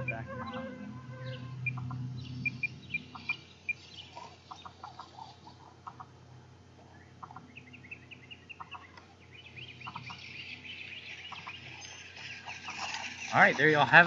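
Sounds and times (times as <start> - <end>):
bird chirps: 0.0 - 6.0, 6.9 - 13.4
faint low hum: 0.0 - 14.0.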